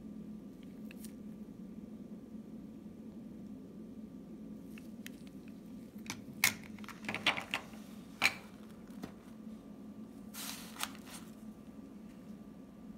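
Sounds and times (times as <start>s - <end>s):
sliding rustle: 10.3s - 12.3s.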